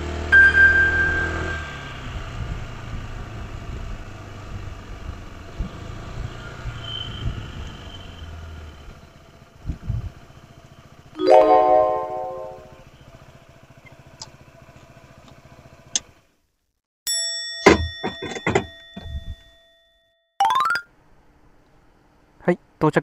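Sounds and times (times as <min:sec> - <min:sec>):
scooter engine humming: 0:00.0 - 0:06.4, 0:08.0 - 0:16.2
loud high steady tone: 0:00.4 - 0:02.1, 0:11.2 - 0:12.9.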